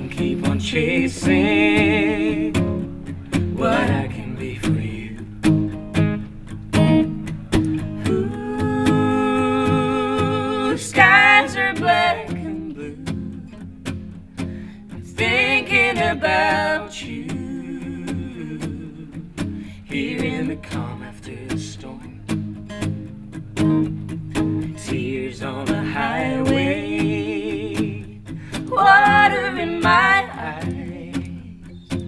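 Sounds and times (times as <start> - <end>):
person singing: 0.0 - 2.8, 3.6 - 5.3, 8.0 - 13.6, 15.1 - 22.2, 24.8 - 32.0
acoustic guitars strummed: 0.0 - 32.0.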